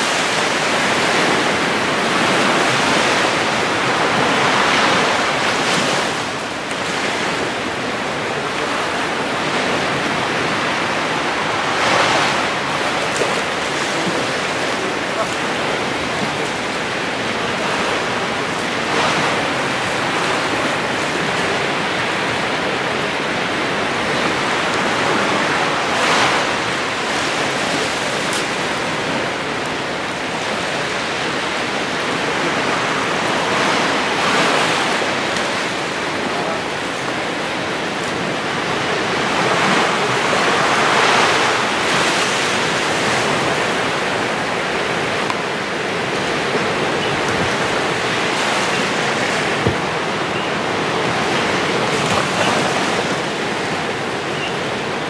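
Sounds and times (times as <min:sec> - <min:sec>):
small waves washing onto beach: 0:00.0 - 0:55.0.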